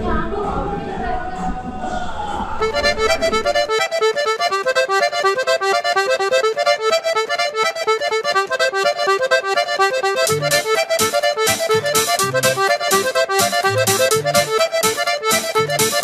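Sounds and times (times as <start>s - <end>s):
low notes and beat: 0.0s - 16.0s
fast bright repeated notes: 2.7s - 16.0s.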